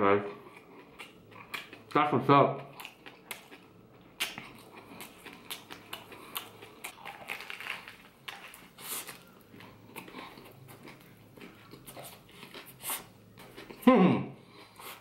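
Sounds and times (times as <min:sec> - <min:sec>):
crusty bread crunching: 0:02.8 - 0:12.8.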